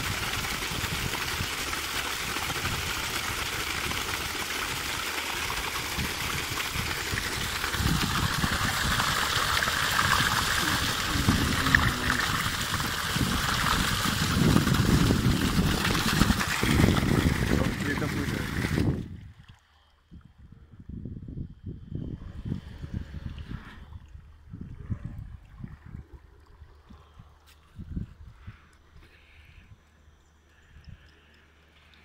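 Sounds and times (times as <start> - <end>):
water gushing onto stony ground: 0.0 - 19.6.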